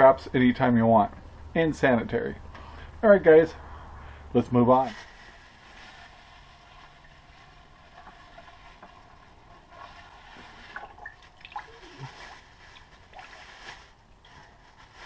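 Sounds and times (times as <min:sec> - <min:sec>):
plastic bag crinkling: 0:04.8 - 0:15.0
light water splashing: 0:09.7 - 0:14.3.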